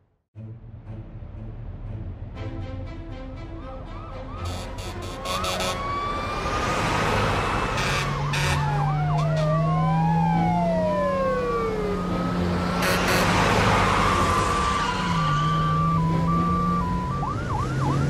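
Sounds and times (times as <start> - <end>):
fire truck siren wailing: 3.7 - 18.0.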